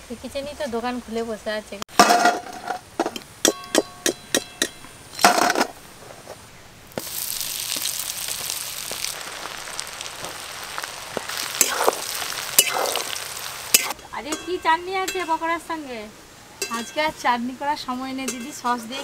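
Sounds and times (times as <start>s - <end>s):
hot oil sizzling: 6.8s - 19.0s
metal spoon clanking against wok: 13.7s - 15.4s, 16.6s - 17.0s, 18.2s - 19.0s.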